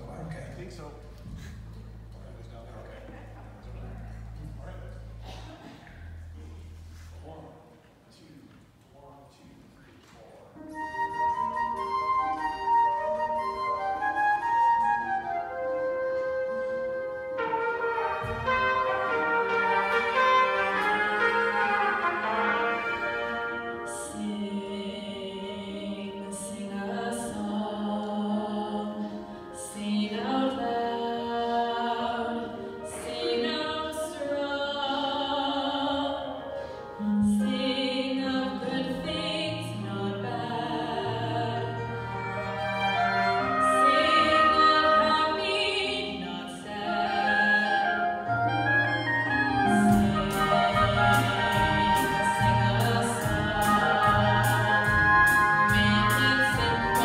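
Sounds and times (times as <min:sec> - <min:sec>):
low bass notes: 0:00.0 - 0:07.6, 0:49.4 - 0:57.0
instrumental accompaniment: 0:10.5 - 0:57.0
choir singing: 0:17.4 - 0:36.4, 0:37.0 - 0:48.4, 0:49.5 - 0:57.0.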